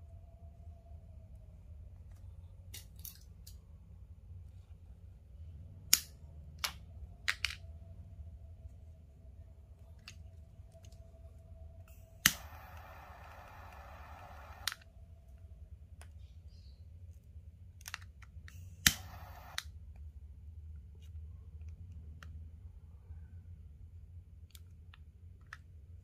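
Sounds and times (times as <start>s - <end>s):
hissing lighter flame: 12.2s - 14.7s, 18.8s - 19.6s
torch lighter igniter click: 12.2s - 14.8s, 18.8s - 19.6s.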